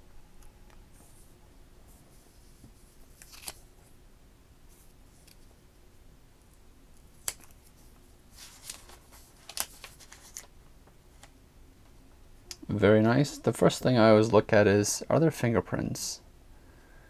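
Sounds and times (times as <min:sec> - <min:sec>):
plastic film crinkling: 0:03.2 - 0:03.6, 0:08.4 - 0:10.5.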